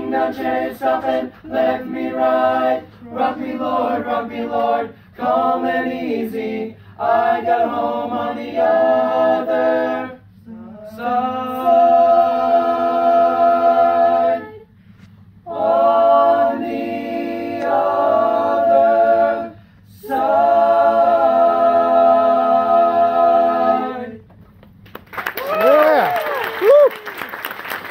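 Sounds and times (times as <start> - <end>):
men singing a cappella harmony: 0.0 - 14.6, 15.5 - 24.2
singers breathing: 19.5 - 19.9.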